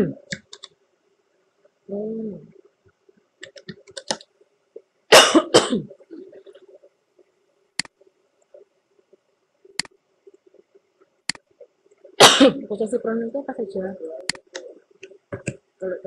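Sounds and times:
keystrokes on computer keyboard: 0.3s - 0.8s, 3.4s - 4.3s
sharp mouse clicks: 3.4s - 4.3s
person coughing: 5.1s - 6.0s, 12.2s - 12.7s.

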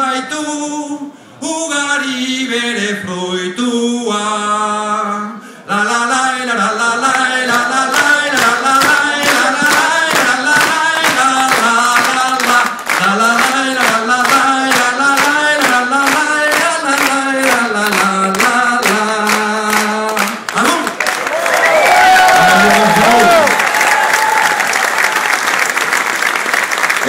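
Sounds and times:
man singing unaccompanied: 0.0s - 20.8s
crowd clapping in rhythm: 6.7s - 27.0s.

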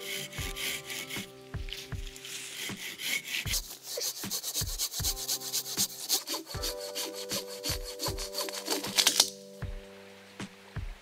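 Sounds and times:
hand saw cutting wood: 0.0s - 9.4s.

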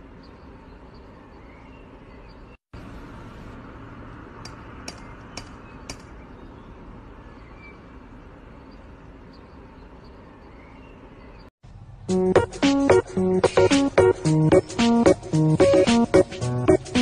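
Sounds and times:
steady background noise: 0.0s - 12.2s.

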